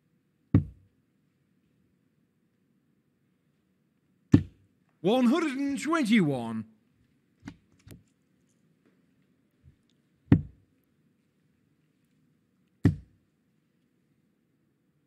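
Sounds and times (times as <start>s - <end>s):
darts striking dartboard: 0.6s - 0.8s, 10.3s - 10.6s, 12.8s - 13.1s.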